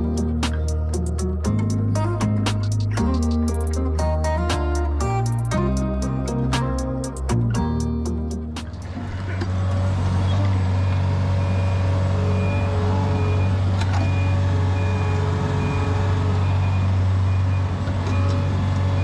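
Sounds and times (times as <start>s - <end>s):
heavy machine engine running: 7.1s - 19.0s
reversing alarm beeping: 10.7s - 19.0s.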